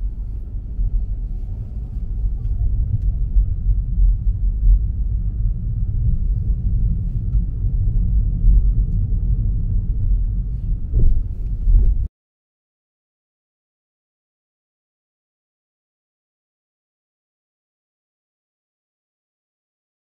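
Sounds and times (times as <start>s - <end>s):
car road and engine rumble: 0.0s - 12.1s
car bumps: 10.8s - 12.1s.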